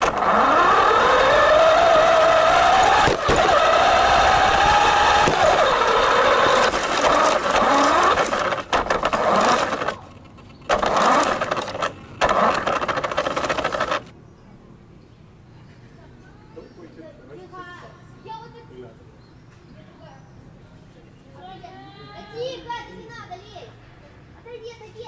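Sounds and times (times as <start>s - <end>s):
toy car electric motor whining: 0.0s - 14.1s.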